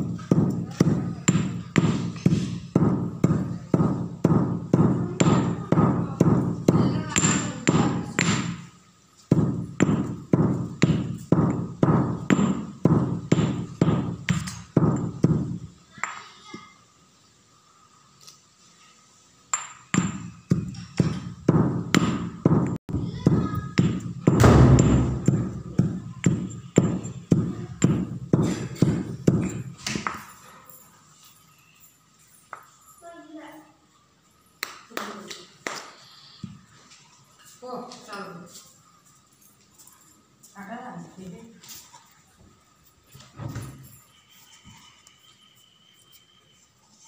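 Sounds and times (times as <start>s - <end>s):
stone pestle pounding in mortar: 0.0s - 8.7s, 9.3s - 16.2s, 19.6s - 30.2s.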